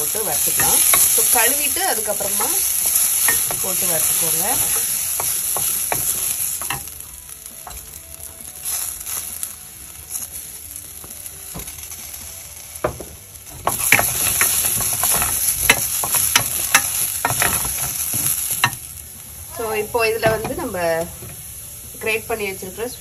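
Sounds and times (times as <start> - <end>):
wooden spoon scraping a pot: 0.0 - 7.0, 13.6 - 18.8
lentils sizzling in ghee: 0.0 - 23.0.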